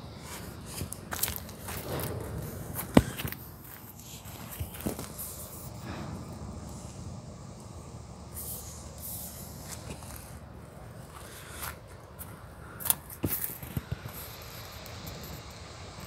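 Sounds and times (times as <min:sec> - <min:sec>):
footsteps crunching on gravel: 0:00.3 - 0:05.5.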